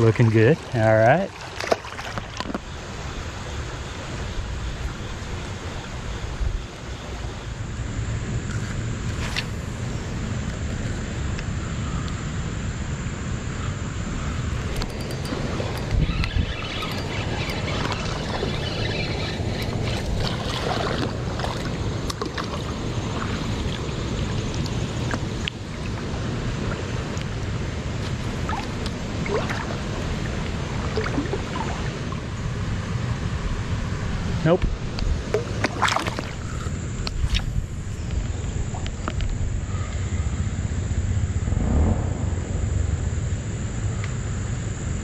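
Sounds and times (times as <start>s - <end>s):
creek water rushing: 0.0s - 4.3s
wind buffeting microphone: 13.7s - 35.4s, 40.4s - 45.0s
fish splashing: 15.2s - 24.0s.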